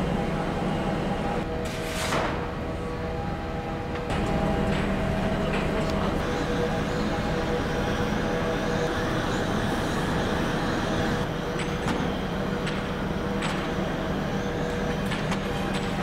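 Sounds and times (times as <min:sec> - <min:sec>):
machinery hum: 0:00.0 - 0:16.0.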